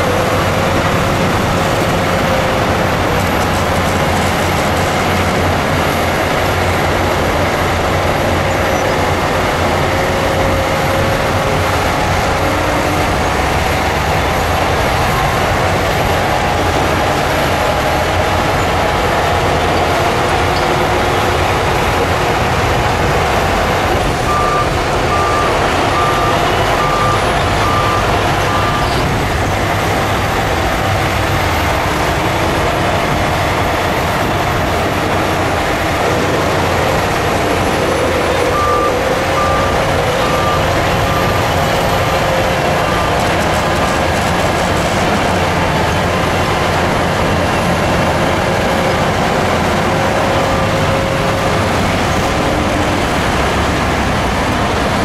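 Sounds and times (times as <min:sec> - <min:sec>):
heavy machinery running: 0:00.0 - 0:55.0
reversing alarm beeping: 0:24.2 - 0:29.1, 0:37.4 - 0:43.3.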